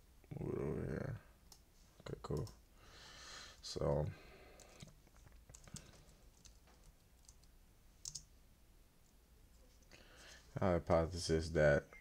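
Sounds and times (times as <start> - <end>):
computer keyboard keystrokes: 4.6 - 8.3.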